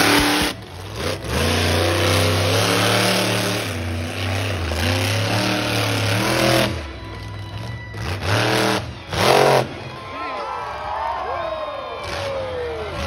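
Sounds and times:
truck engine revving loudly: 0.0s - 9.9s.

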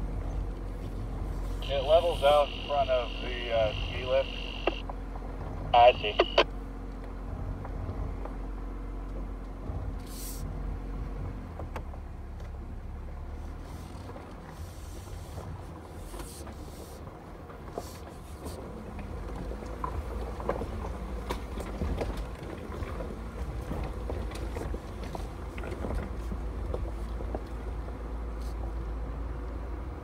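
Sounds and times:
engine and drivetrain rumble: 0.0s - 30.0s
knocks and rattles over rocks: 18.8s - 27.6s.

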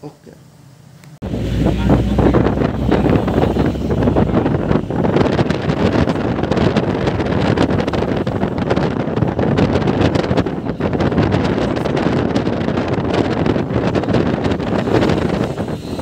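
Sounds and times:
road and engine noise: 0.8s - 16.0s
low drone: 1.2s - 8.3s
wind buffeting microphone: 1.2s - 16.0s.

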